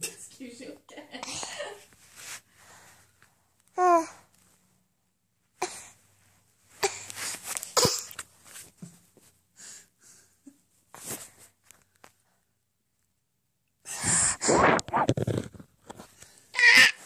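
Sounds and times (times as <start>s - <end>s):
breathy puffs on microphone: 13.9s - 15.4s.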